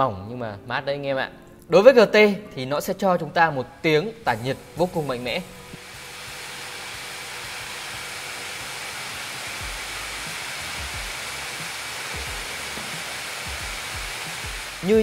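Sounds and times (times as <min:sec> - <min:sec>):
laptop cooling fans rushing: 0:05.8 - 0:15.0.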